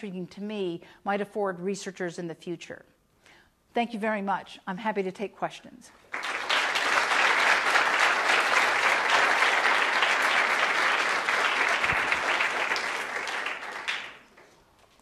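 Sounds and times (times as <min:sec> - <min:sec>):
audience applauding: 0:06.0 - 0:14.6.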